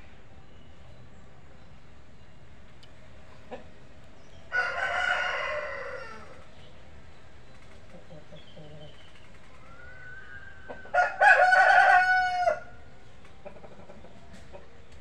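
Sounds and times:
rooster crowing: 4.5s - 6.4s, 9.6s - 12.8s.

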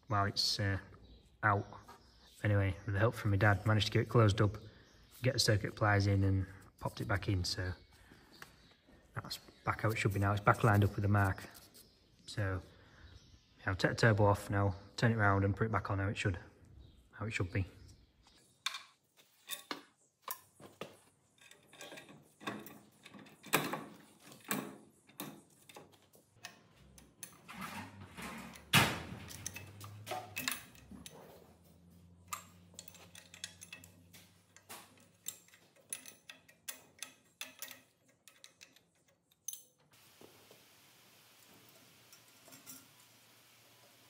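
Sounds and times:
spanners clinking on metal: 18.6s - 20.6s, 21.3s - 39.9s, 42.1s - 43.0s.

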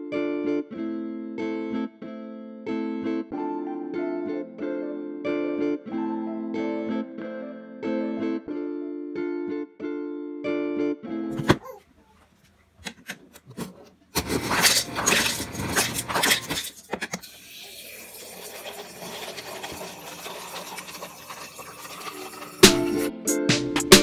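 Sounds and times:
ice cubes clattering into cup: 14.2s - 22.6s
water running over ice: 14.5s - 23.1s.

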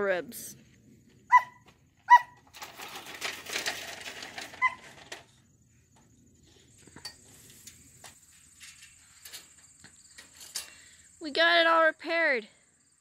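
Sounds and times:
crickets chirring: 0.5s - 13.0s
dog barking: 1.3s - 2.4s
rustling crackling noise: 2.4s - 5.4s.

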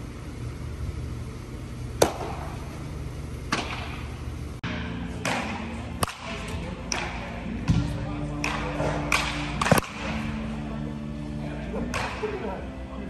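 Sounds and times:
bat cracking against ball: 2.0s - 2.6s, 3.5s - 4.2s, 5.2s - 7.8s, 8.4s - 10.4s, 11.9s - 12.4s.

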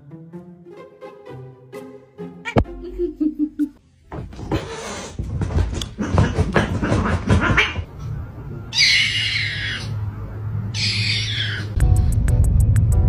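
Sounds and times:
cats scuffling: 4.1s - 7.9s
kitten squeaky cry: 8.7s - 9.9s, 10.7s - 11.8s.

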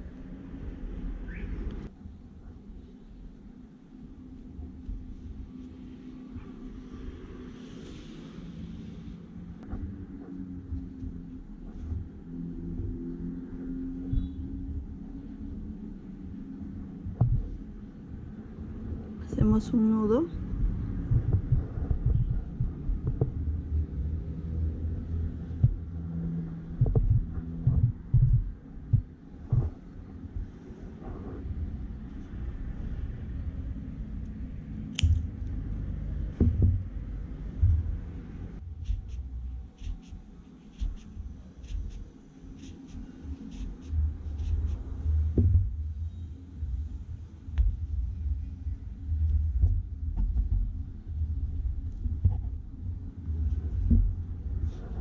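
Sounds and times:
thump: 45.4s - 45.7s.

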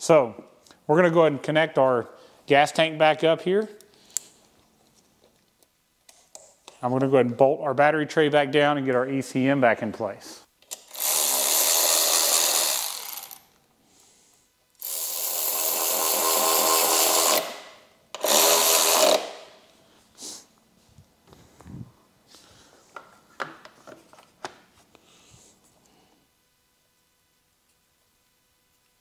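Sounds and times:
cordless power driver running: 10.8s - 13.4s, 18.2s - 19.4s.

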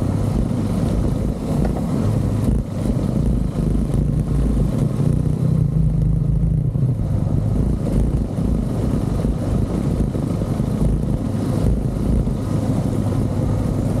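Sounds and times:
motorcycle engine running: 0.0s - 14.0s
road noise: 0.0s - 14.0s
wind noise: 0.0s - 14.0s.

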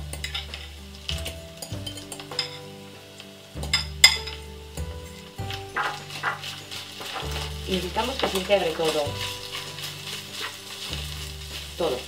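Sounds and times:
soft background music: 0.0s - 12.0s
fork scraping ceramic bowl: 5.4s - 11.8s.

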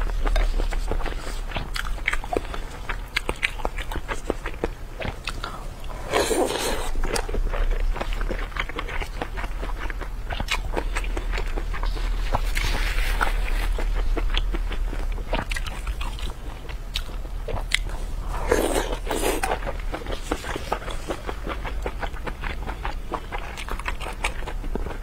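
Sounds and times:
wet chewing and mouth smacks: 0.0s - 25.0s.

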